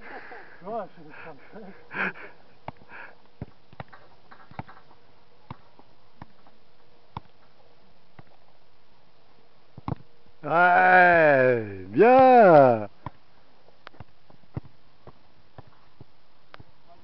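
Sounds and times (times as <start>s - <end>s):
dull thuds of ball touches: 2.6s - 6.5s, 7.1s - 7.4s, 9.8s - 10.1s, 13.9s - 16.7s.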